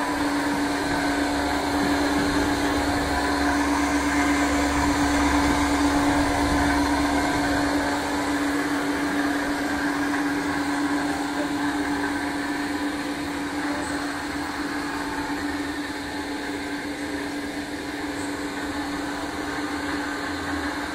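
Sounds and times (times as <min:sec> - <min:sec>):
mixer motor humming: 0:00.0 - 0:20.9.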